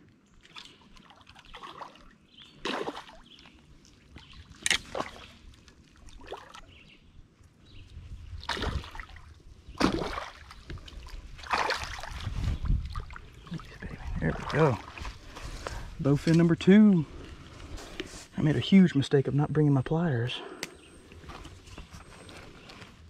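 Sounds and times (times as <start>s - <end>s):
fish splashing in water: 0.5s - 3.4s, 8.4s - 13.4s.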